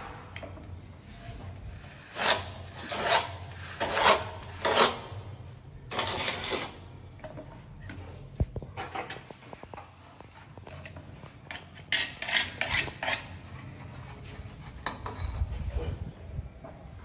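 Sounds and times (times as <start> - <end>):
loud harsh scraping strokes: 1.1 - 5.3.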